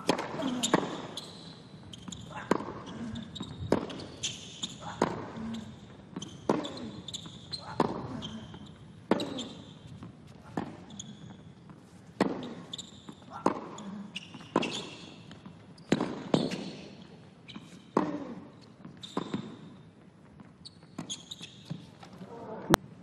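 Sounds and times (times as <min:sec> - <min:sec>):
racket striking tennis ball: 0:00.0 - 0:01.0, 0:02.2 - 0:02.9, 0:03.6 - 0:05.4, 0:06.2 - 0:07.0, 0:07.7 - 0:08.1, 0:09.1 - 0:10.9, 0:12.2 - 0:12.8, 0:13.4 - 0:13.8, 0:14.5 - 0:16.8
tennis ball bouncing: 0:00.0 - 0:01.2, 0:01.9 - 0:16.8, 0:17.5 - 0:18.2, 0:18.8 - 0:19.8
tennis shoes squeaking: 0:00.1 - 0:22.3.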